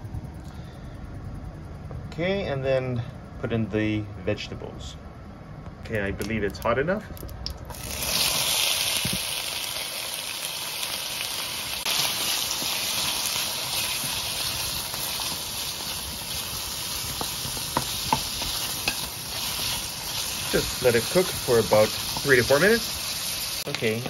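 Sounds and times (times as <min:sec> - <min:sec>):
vegetables sizzling in hot oil: 0:07.7 - 0:24.0
wooden spatula knocking wok: 0:17.0 - 0:20.8.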